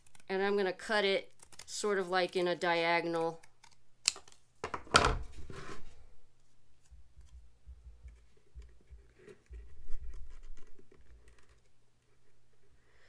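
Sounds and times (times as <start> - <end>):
scissors snipping cardboard: 1.3 - 1.8.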